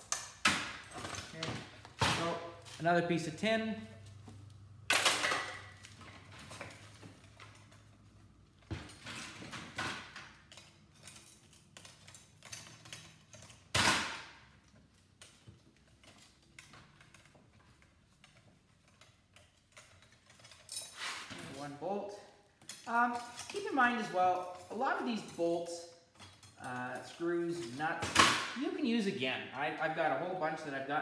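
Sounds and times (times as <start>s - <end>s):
metallic clanks and rattles: 4.9s - 21.7s, 26.1s - 28.7s.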